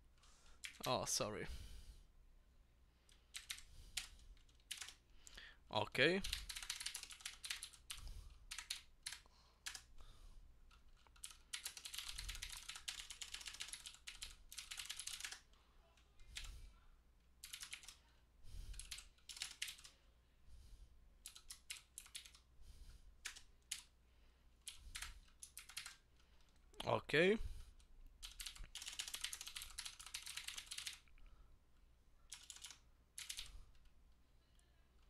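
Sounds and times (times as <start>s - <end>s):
fast keyboard typing: 0.6s - 1.0s, 3.3s - 5.0s, 6.2s - 9.9s, 10.7s - 15.5s, 16.3s - 16.5s, 17.4s - 18.0s, 18.7s - 20.0s, 21.2s - 22.4s, 23.2s - 23.9s, 24.6s - 26.5s, 27.8s - 31.1s, 32.3s - 33.9s.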